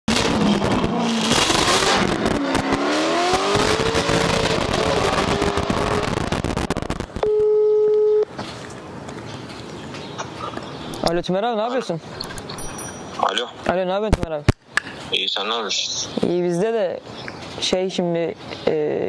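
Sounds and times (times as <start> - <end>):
tyre and road noise: 0.0 - 18.7
car engine revving hard: 0.1 - 6.6
telephone ringback tone: 7.2 - 8.3.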